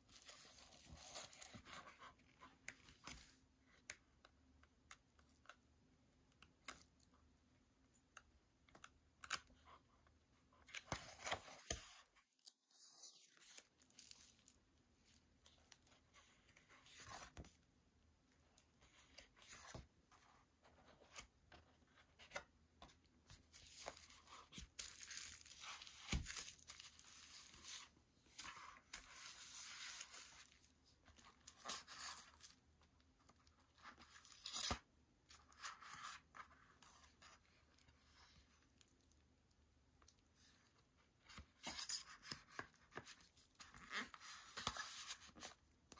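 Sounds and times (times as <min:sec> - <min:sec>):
paper and card rustling: 0:18.8 - 0:32.6.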